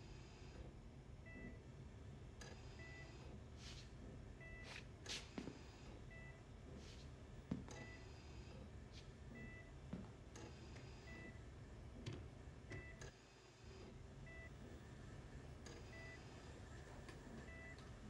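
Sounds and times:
low steady hum: 0.0 - 13.1, 13.8 - 18.0
patient monitor beeping: 2.7 - 3.2, 4.4 - 4.8, 6.1 - 6.5, 9.3 - 9.8, 11.0 - 11.4, 15.8 - 16.2, 17.4 - 17.9.

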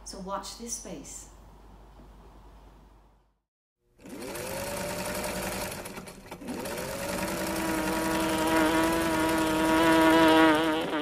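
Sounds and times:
electric sewing machine running: 4.0 - 11.0.

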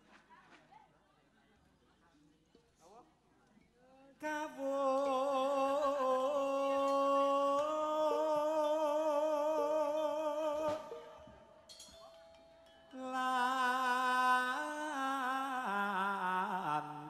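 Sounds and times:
person singing long wavering note: 4.3 - 11.6, 12.9 - 17.0.

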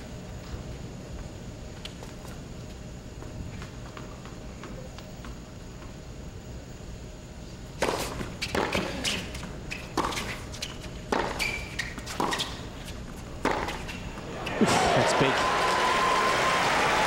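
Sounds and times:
racket hitting tennis ball: 11.1 - 12.7, 13.4 - 14.8
low crowd hush: 14.2 - 17.0.

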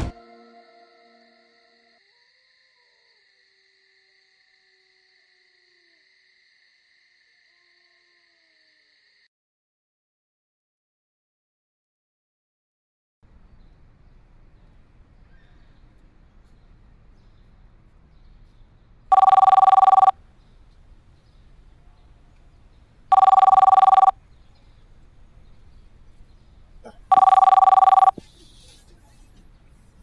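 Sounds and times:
telephone ringing: 19.1 - 20.2, 23.1 - 24.2, 27.1 - 28.2.

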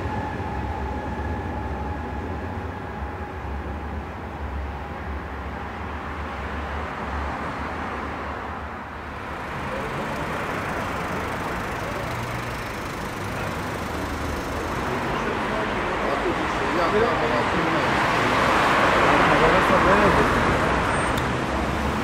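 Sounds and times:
distant train rumble: 0.0 - 6.3
street traffic: 0.0 - 22.0
car driving past: 9.0 - 22.0.

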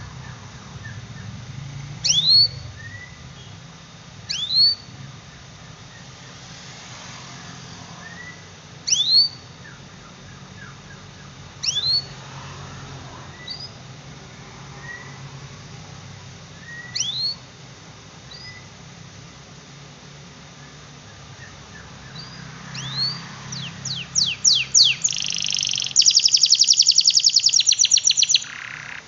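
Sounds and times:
canary chirping: 0.0 - 3.6, 4.2 - 5.0, 8.0 - 12.2, 13.3 - 13.9, 16.6 - 17.5, 18.3 - 18.7, 20.6 - 29.0
low hum: 0.0 - 6.3.

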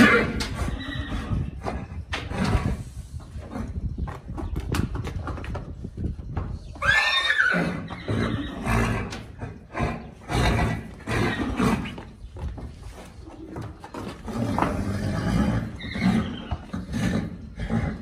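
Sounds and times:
horse whinnying: 0.0 - 2.8, 6.7 - 12.0, 14.3 - 18.0.

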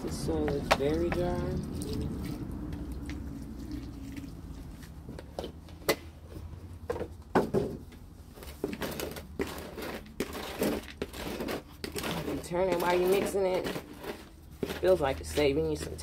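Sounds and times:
wet soil squishing and scraping: 0.0 - 5.7, 8.4 - 16.0
water poured into soil: 0.8 - 5.1.

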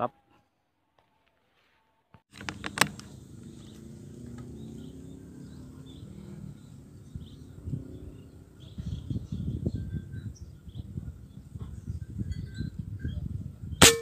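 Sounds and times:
small birds chirping faintly: 2.0 - 13.3.

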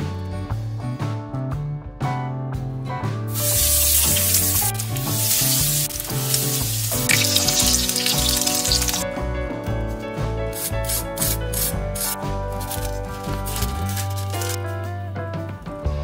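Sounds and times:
background music: 0.0 - 16.0
food sizzling in a hot pan: 3.3 - 9.0.

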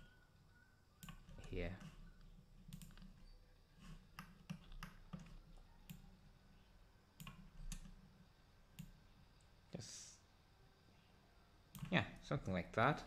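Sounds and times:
computer mouse clicks: 1.0 - 3.2, 3.8 - 6.1, 7.2 - 8.0, 8.7 - 9.0.

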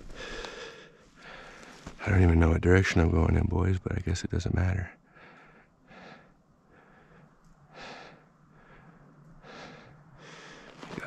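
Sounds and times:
man breathing: 0.0 - 2.0, 5.0 - 11.0.

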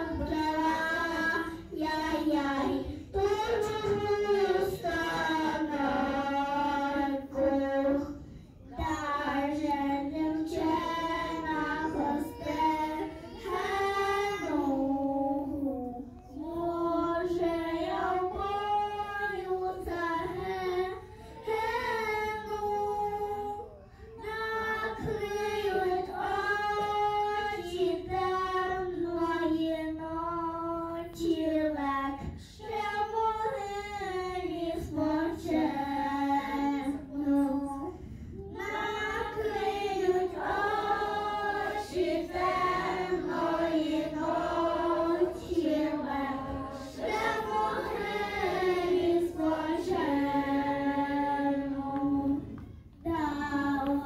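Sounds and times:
girls singing into microphones: 0.0 - 54.0.

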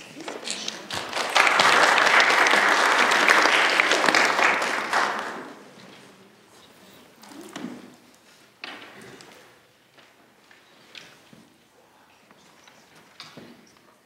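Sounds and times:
audience applauding: 0.3 - 5.7.

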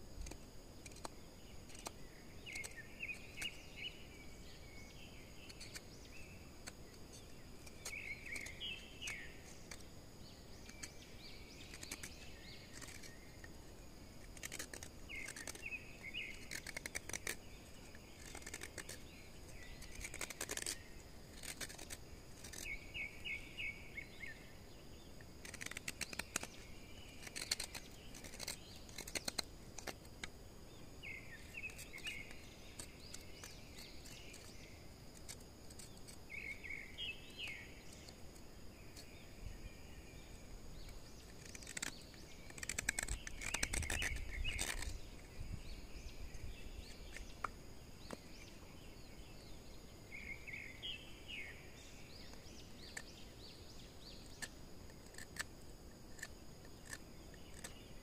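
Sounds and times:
high insect drone: 0.0 - 58.0
sharp clicks and scraping: 0.2 - 3.8, 5.4 - 9.9, 10.5 - 13.6, 14.2 - 23.1, 25.2 - 30.4, 31.3 - 36.7, 40.8 - 45.6, 46.3 - 48.6, 52.1 - 58.0
birds chirping in trills: 0.2 - 58.0.

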